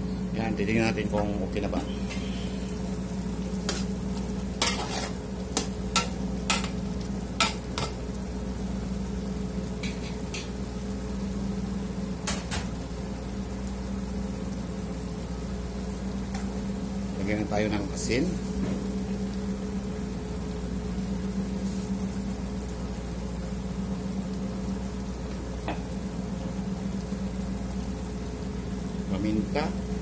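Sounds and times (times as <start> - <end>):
steady low hum: 0.0 - 30.0
meat hissing: 1.8 - 2.9.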